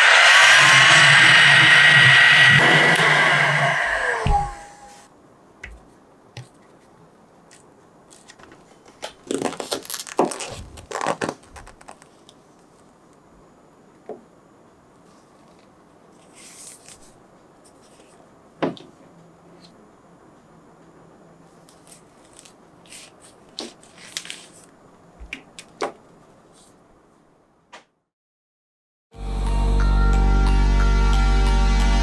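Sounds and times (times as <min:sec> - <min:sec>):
heat gun blowing: 0:00.0 - 0:05.0
sharp knock: 0:00.0 - 0:05.0
rustling and rubbing of vinyl figure: 0:05.7 - 0:13.0, 0:15.0 - 0:18.4, 0:21.4 - 0:24.8, 0:25.4 - 0:26.9.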